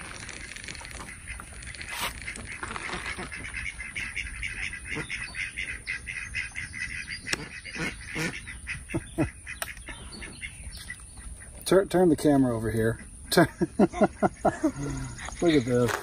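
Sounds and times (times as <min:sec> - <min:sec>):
louder lower bird calls: 0:00.8 - 0:11.6
birds quack-like chatter: 0:00.8 - 0:16.0.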